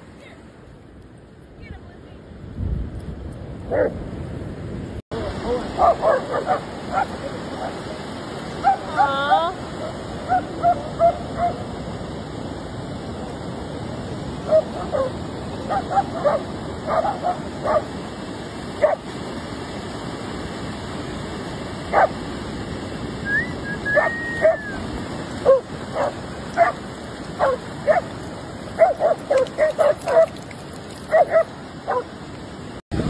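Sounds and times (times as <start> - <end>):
wind: 0.0 - 33.0
dogs barking: 3.7 - 4.0, 5.4 - 7.9, 8.6 - 9.1, 9.8 - 11.7, 14.4 - 17.9, 18.8 - 19.1, 21.9 - 22.2, 23.9 - 24.8, 25.4 - 26.8, 27.4 - 28.1, 28.8 - 30.4, 31.0 - 32.1
surf: 5.1 - 33.0.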